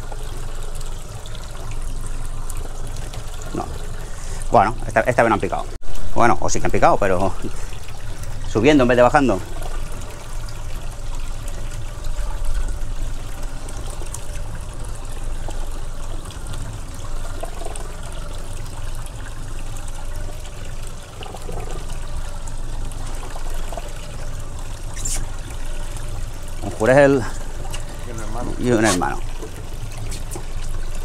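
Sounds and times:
water trickling and sloshing: 0.0s - 31.0s.

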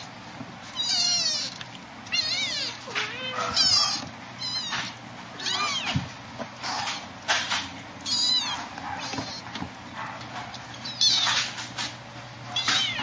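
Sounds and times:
kittens scuffling: 0.0s - 13.0s
kittens mewing: 0.6s - 7.0s, 8.0s - 9.7s, 10.4s - 11.7s, 12.5s - 13.0s.

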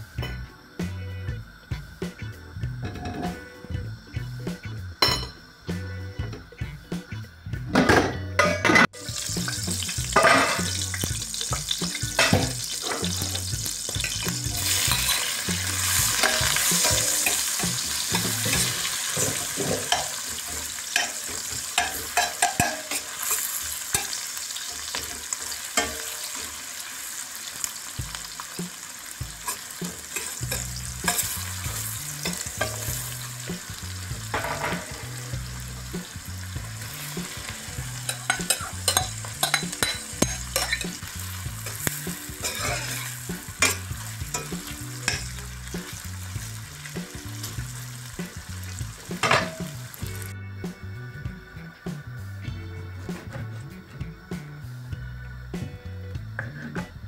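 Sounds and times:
onions sizzling in a pan: 0.0s - 57.0s
metal spoon scraping a pan: 8.4s - 26.9s, 29.4s - 33.5s, 36.8s - 45.4s, 49.2s - 49.8s.

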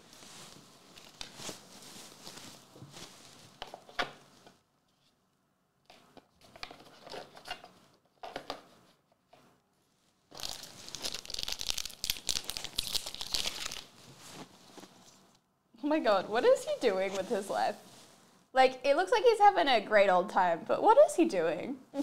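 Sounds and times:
wrapper tearing and crinkling: 10.3s - 14.4s.

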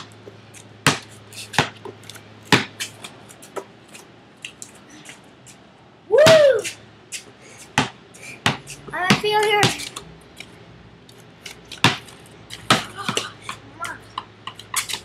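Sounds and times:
basketball bouncing: 0.8s - 1.9s, 2.5s - 2.8s, 7.8s - 9.8s, 11.8s - 12.0s, 12.6s - 14.9s.

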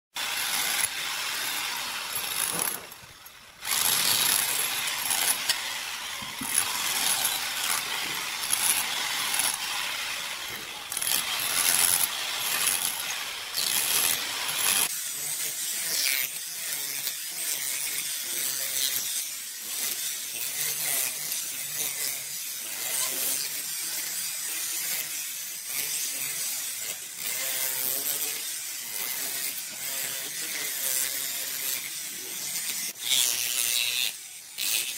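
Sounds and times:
rotary hammer chiselling tiles: 0.3s - 14.9s.

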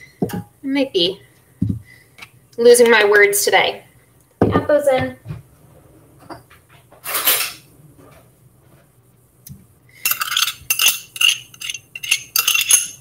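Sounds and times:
metal spoon clinking on glass: 10.1s - 13.0s.

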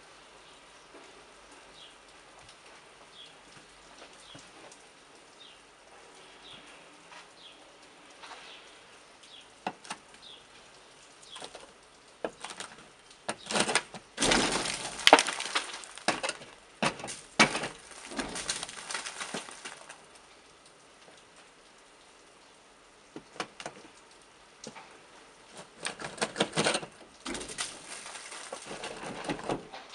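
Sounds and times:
ice cracking and breaking off: 12.3s - 20.1s, 25.7s - 29.6s
stick knocking on icicles: 13.3s - 20.0s, 25.8s - 29.3s.

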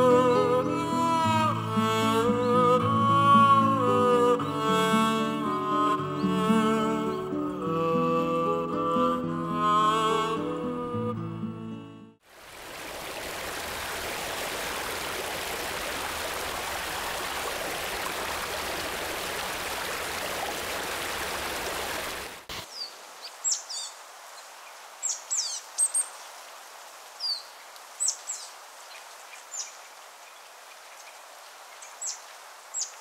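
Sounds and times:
stream flowing over rocks: 12.2s - 32.9s
small birds chirping: 22.6s - 26.4s, 27.2s - 31.2s.

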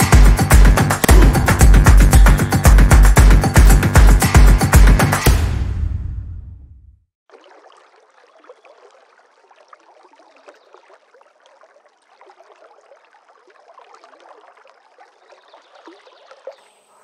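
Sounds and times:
music: 0.0s - 6.9s
water trickling and lapping: 7.3s - 17.0s.

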